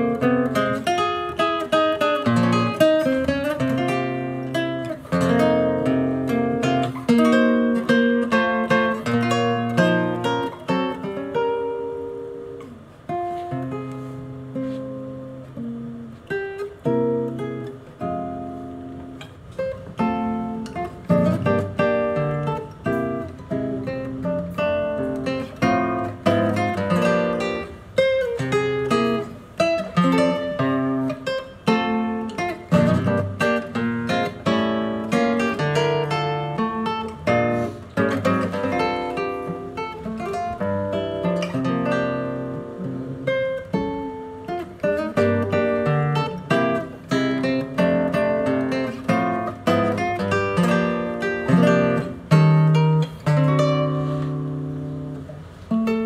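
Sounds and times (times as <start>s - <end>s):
acoustic guitar playing a tango: 0.0s - 56.0s.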